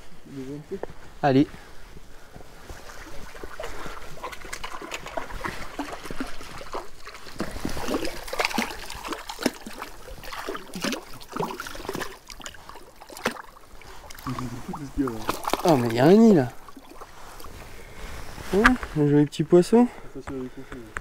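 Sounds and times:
fish splashing in water: 0:02.8 - 0:17.5.

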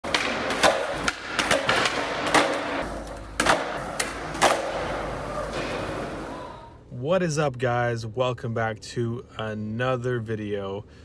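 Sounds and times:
skateboard deck slapping down: 0:00.0 - 0:06.3
skateboard wheels rolling on concrete: 0:00.0 - 0:06.8
skateboard tail popping: 0:00.1 - 0:06.3.

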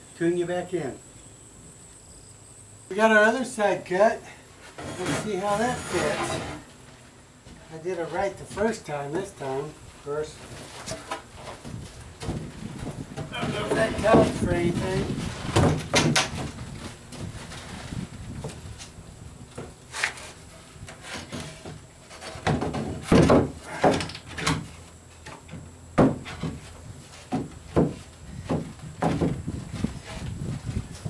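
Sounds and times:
wooden boards knocking and thumping: 0:10.6 - 0:17.7, 0:20.9 - 0:30.8.

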